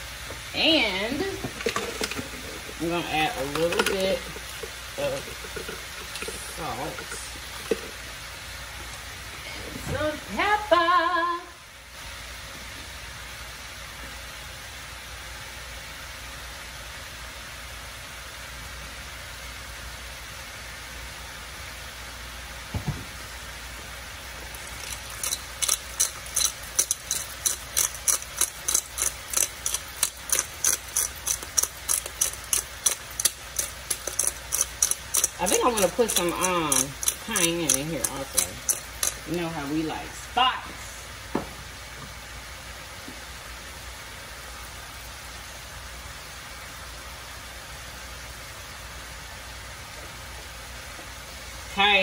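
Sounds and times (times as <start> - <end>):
food sizzling in wok: 0.0 - 9.5, 21.6 - 47.2
knock: 22.7 - 23.1, 41.3 - 41.6
pepper grinder rasping clicks: 24.8 - 39.4.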